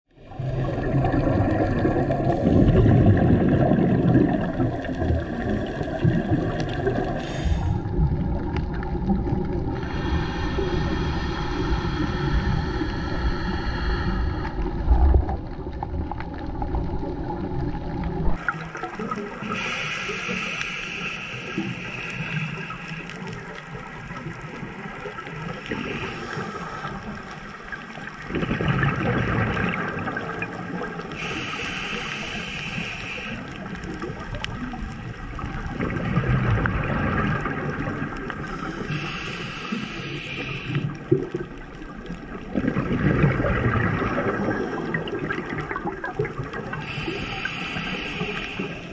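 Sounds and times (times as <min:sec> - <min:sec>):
exhaled bubbles gurgling: 0:00.1 - 0:48.9
regulator breath hiss: 0:07.2 - 0:07.8, 0:19.4 - 0:23.5, 0:25.5 - 0:27.2, 0:31.1 - 0:33.7, 0:38.5 - 0:41.0, 0:46.8 - 0:48.9.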